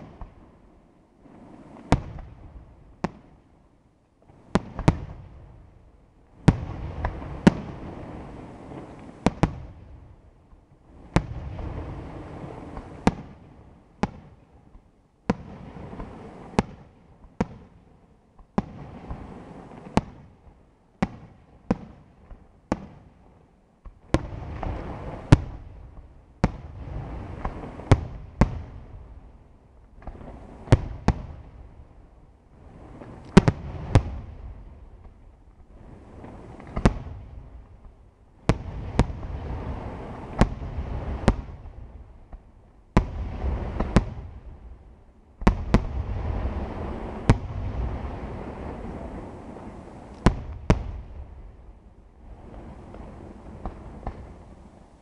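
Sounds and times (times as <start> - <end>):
fireworks bursting: 0.0 - 3.4, 4.2 - 5.6, 6.3 - 23.2, 23.8 - 55.0
rumbling wash of sound: 35.6 - 55.0.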